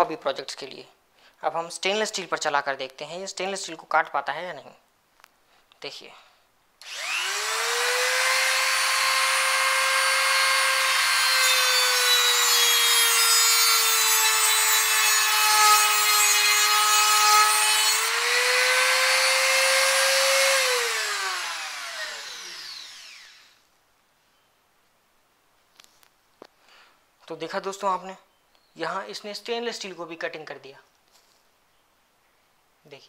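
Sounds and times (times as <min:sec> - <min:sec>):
die grinder cutting steel: 0:06.8 - 0:23.6.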